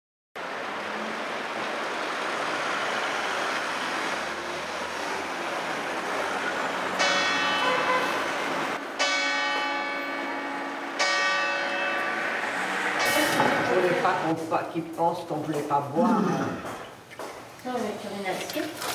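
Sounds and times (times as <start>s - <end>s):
street noise hiss: 0.4s - 18.4s
bell tolling: 7.0s - 8.3s, 9.0s - 14.4s.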